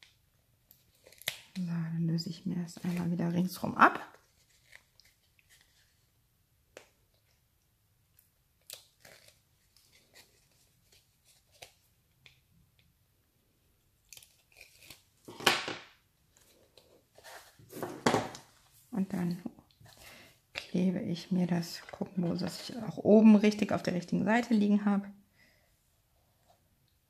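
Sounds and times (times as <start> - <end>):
paper tearing rustle: 4.1 - 6.0, 8.6 - 11.9, 14.1 - 15.6
paper crackling and scratching: 14.1 - 15.4.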